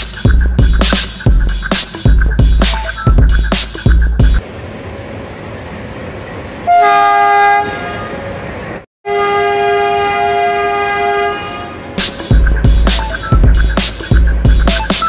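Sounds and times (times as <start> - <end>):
diesel locomotive rumbling: 0.0 - 15.0
locomotive horn blasts: 6.6 - 8.4, 9.0 - 12.0.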